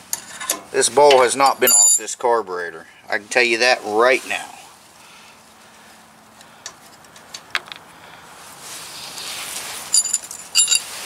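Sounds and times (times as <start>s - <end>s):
rustle: 0.0s - 11.0s
metallic wrench clinks: 10.0s - 10.9s.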